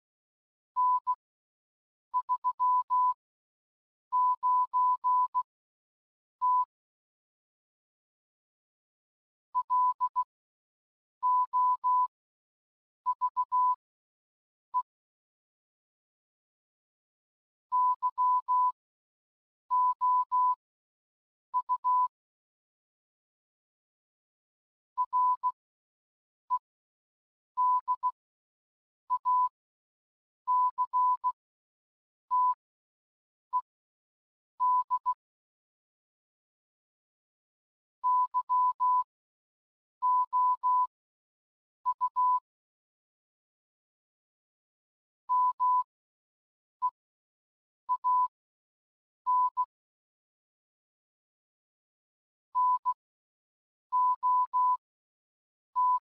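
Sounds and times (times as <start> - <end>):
morse code beeps: 0.8 - 1.1, 2.2 - 3.2, 4.2 - 5.4, 6.4 - 6.7, 13.2 - 13.8, 25.0 - 25.6, 30.5 - 31.4, 34.6 - 35.1, 38.0 - 39.0, 41.9 - 42.4, 45.3 - 45.9, 47.9 - 48.3, 52.6 - 53.0, 54.0 - 54.8.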